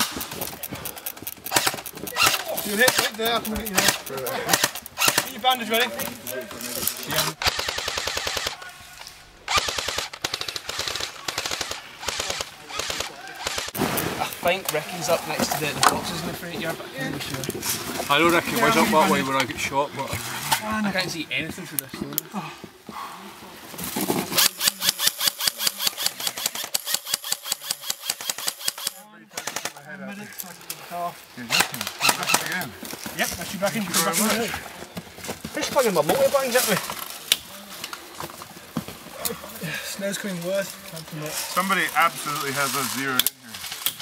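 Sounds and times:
electric rifles firing full-auto: 0:00.0 - 0:06.4, 0:07.1 - 0:08.6, 0:09.5 - 0:14.5, 0:24.3 - 0:29.8.

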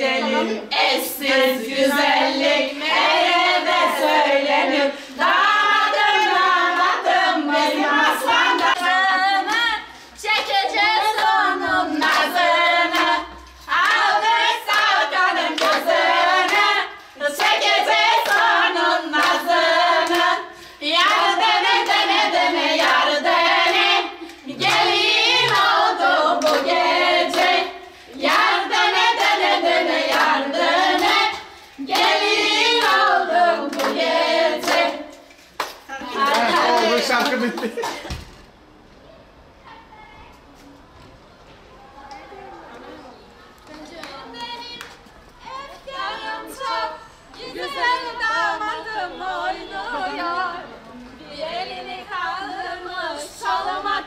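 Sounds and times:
group of voices singing: 0:00.0 - 0:37.3, 0:45.4 - 0:54.0
hand claps: 0:17.4 - 0:18.6, 0:23.7 - 0:25.8, 0:26.4 - 0:26.7, 0:31.0 - 0:32.2, 0:32.8 - 0:33.1, 0:33.7 - 0:34.0, 0:35.6 - 0:38.0.

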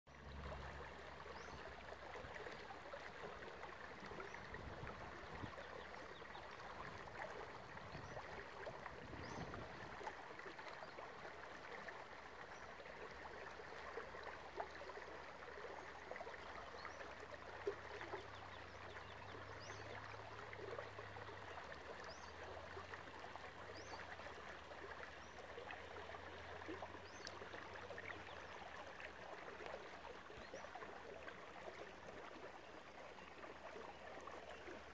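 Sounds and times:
creek trickling and gurgling: 0:00.1 - 0:34.9.

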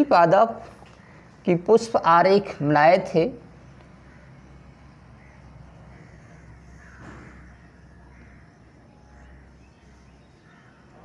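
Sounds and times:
low steady hum: 0:00.0 - 0:11.0
crows cawing faintly: 0:00.8 - 0:01.5, 0:03.5 - 0:11.0.

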